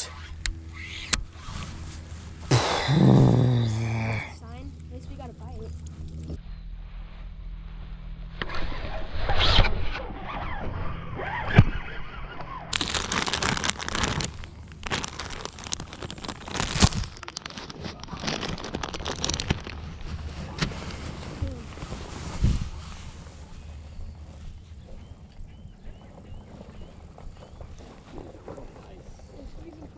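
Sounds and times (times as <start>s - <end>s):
plastic bag crinkling: 12.7s - 22.4s.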